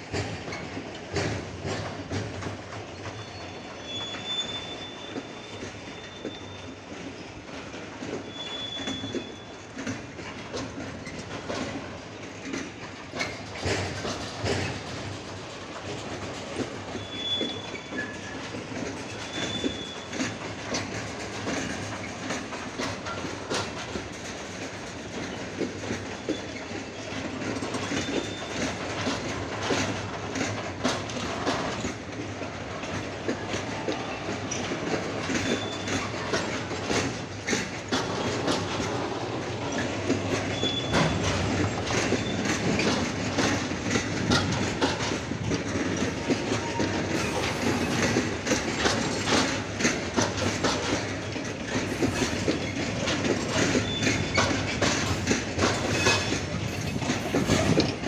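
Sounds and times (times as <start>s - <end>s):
train wheels clattering over rail joints: 0.0s - 58.0s
high wheel squeals: 3.0s - 6.9s, 8.2s - 9.7s, 16.9s - 20.4s, 27.8s - 28.7s, 35.2s - 36.4s, 40.5s - 43.0s, 53.6s - 54.6s.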